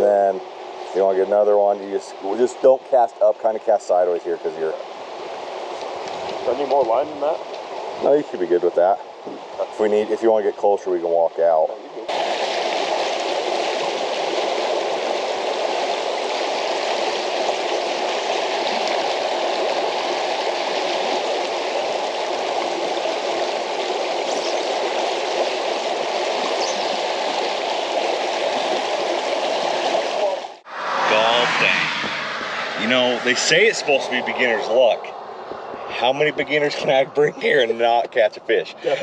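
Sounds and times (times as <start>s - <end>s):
water rushing over cobbles: 12.0s - 30.6s.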